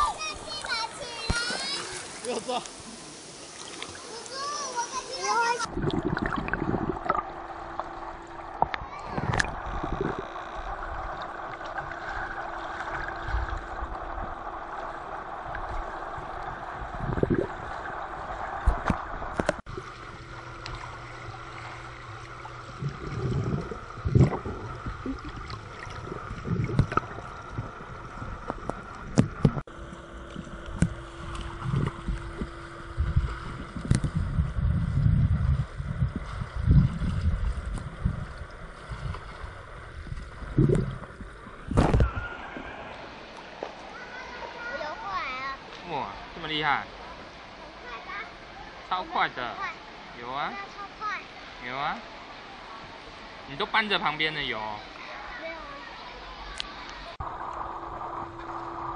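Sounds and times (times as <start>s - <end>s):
faint hum: 0.0s - 48.9s, 49.6s - 58.9s
muffled underwater wash: 0.0s - 58.9s
underwater thumps and sloshes: 5.6s - 43.9s.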